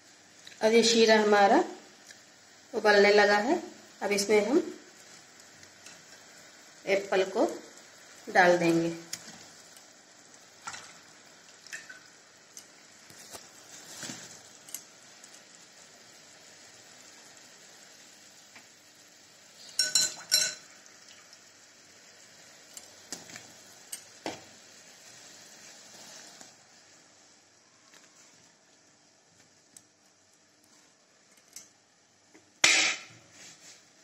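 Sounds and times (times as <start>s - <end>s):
metal clattering against pan: 19.7s - 20.6s.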